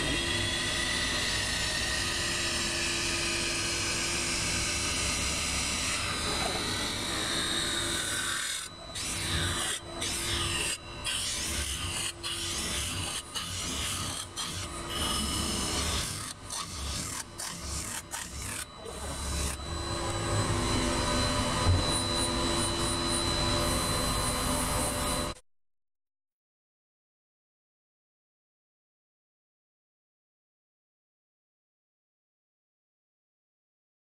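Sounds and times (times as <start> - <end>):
steady high whine: 0.0 - 25.4.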